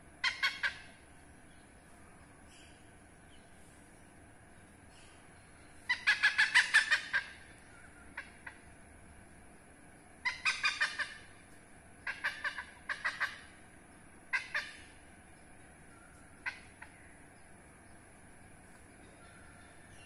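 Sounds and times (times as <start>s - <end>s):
hornbill calling in rapid notes: 0.2s - 1.3s, 5.8s - 9.0s, 10.2s - 11.4s, 12.0s - 15.2s, 15.8s - 17.3s.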